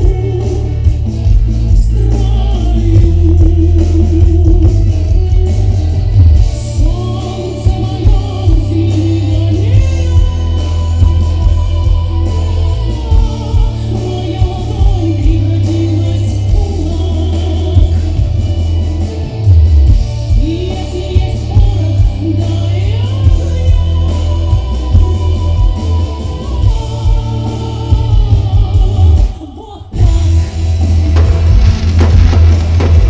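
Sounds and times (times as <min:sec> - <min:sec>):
woman singing into microphone: 0:00.0 - 0:00.9, 0:01.7 - 0:05.2, 0:06.7 - 0:18.3, 0:20.3 - 0:30.5
amplified band accompaniment: 0:00.0 - 0:33.0.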